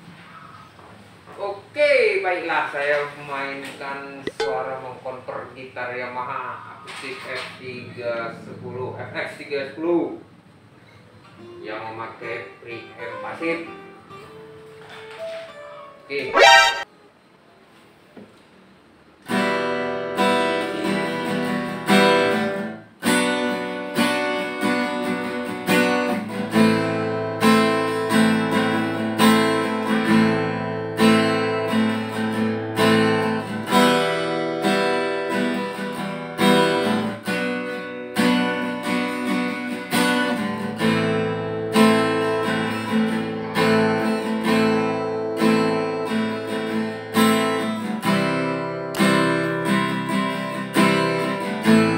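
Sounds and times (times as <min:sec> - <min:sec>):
acoustic guitar strumming: 0:04.3 - 0:04.8, 0:16.3 - 0:16.9, 0:19.6 - 0:51.9.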